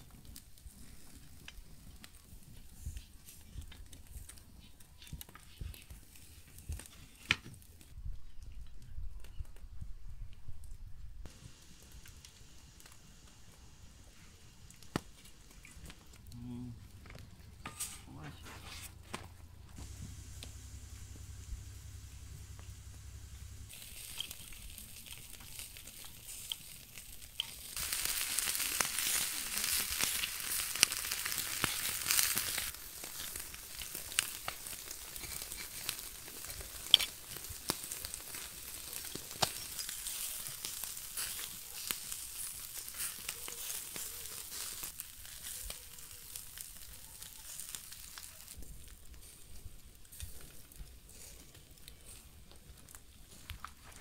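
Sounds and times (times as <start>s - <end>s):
meat sizzling over charcoal: 0.0s - 8.0s, 11.3s - 54.0s
sharp crackling pops: 11.3s - 54.0s.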